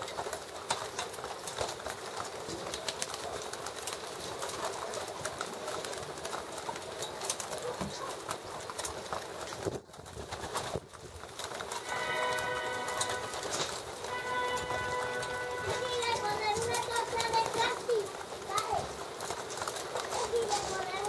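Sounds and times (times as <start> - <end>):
beaks pecking at trough: 15.6 - 21.0.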